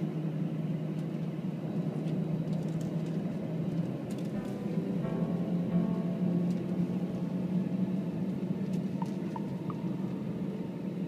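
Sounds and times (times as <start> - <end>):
airliner cabin engine drone: 0.0 - 11.0
faint higher tones: 4.4 - 11.0.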